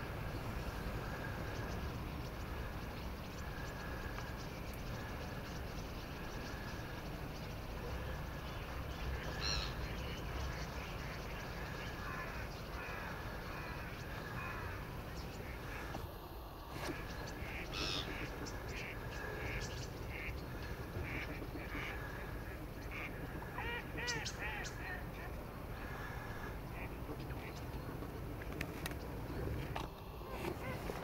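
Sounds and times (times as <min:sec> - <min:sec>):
short bird calls: 0:09.2 - 0:10.1, 0:16.7 - 0:27.6.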